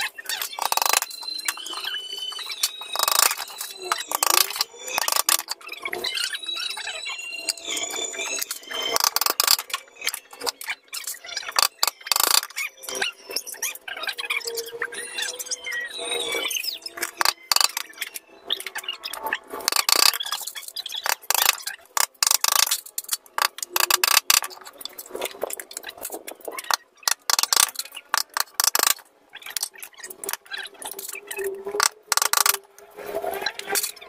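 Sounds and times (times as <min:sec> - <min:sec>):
bamboo slats clicking and clattering: 0:00.3 - 0:01.8, 0:02.7 - 0:05.6, 0:08.9 - 0:10.6, 0:11.5 - 0:12.6, 0:17.0 - 0:17.9, 0:19.7 - 0:32.7.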